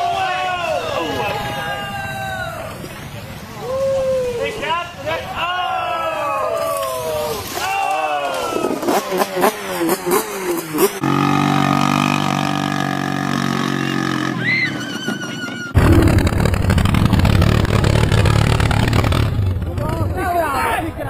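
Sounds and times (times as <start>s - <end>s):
loud quad engine full throttle: 8.5s - 15.1s, 15.7s - 21.0s
quad engine revving unevenly: 8.8s - 14.8s, 15.8s - 20.5s
small quad engine running: 8.9s - 20.2s.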